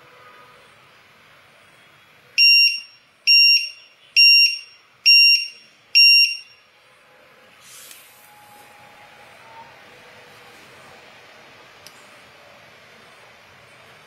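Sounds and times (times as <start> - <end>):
short high-pitched buzzer beeps: 2.4 - 6.6.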